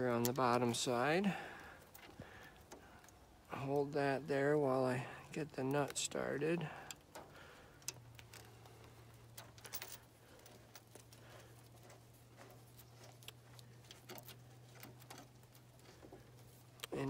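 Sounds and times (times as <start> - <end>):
small metal clicks: 6.8 - 17.0.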